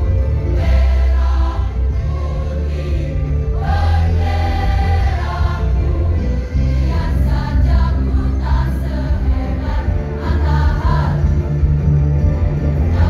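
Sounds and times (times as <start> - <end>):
choir singing: 0.0 - 11.5, 12.8 - 13.0
amplified music with strong bass: 0.0 - 13.0.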